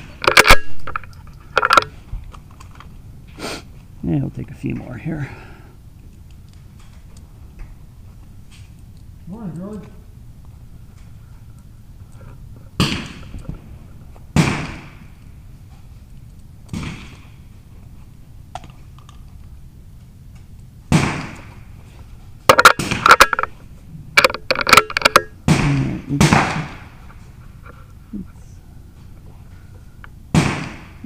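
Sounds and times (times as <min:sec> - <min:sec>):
rifle shots: 0:12.8 - 0:13.4, 0:14.3 - 0:15.2, 0:16.7 - 0:17.4, 0:20.9 - 0:21.6, 0:22.5 - 0:23.5, 0:24.8 - 0:27.0, 0:30.3 - 0:31.0.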